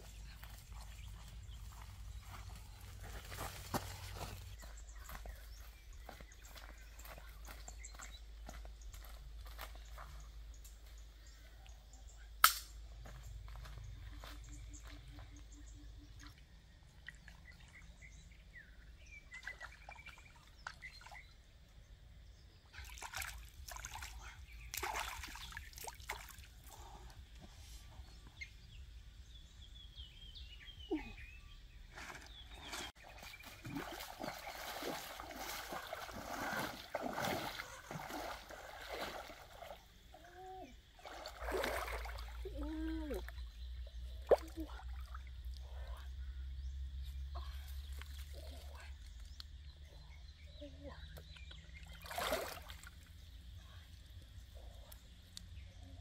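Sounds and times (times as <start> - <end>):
sharp click: 12.4 - 12.8
hands splashing in water: 33.5 - 39.8, 41.0 - 42.4.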